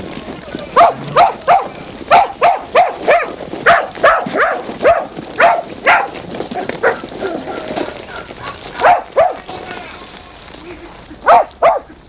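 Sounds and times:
dog barking: 0:00.8 - 0:09.4, 0:11.2 - 0:12.0.

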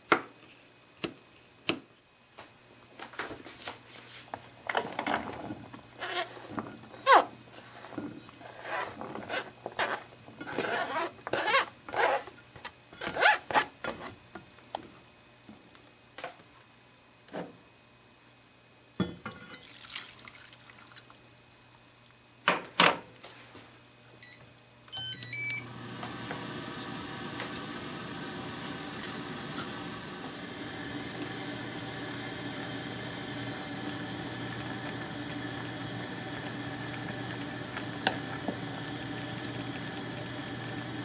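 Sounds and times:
milk pouring into pan: 0:19.6 - 0:21.2
cooktop control panel beeps: 0:24.2 - 0:25.7
hob humming: 0:25.0 - 0:41.0.

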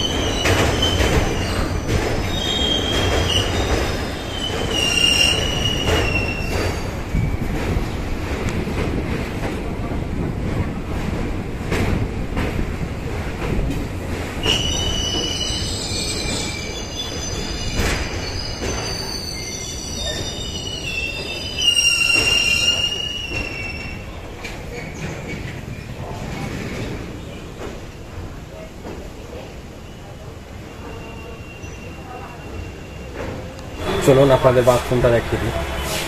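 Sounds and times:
train wheel squeal: 0:00.0 - 0:07.8, 0:14.4 - 0:27.4, 0:29.4 - 0:34.9
train rumbling over bridge: 0:00.0 - 0:36.0
sharp knocks of train wheels: 0:00.1 - 0:09.6.

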